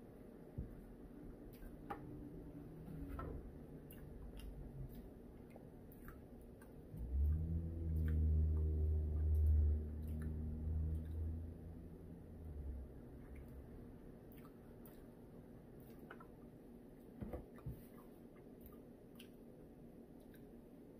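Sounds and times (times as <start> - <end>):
man chewing: 3.8 - 6.9, 13.3 - 16.4.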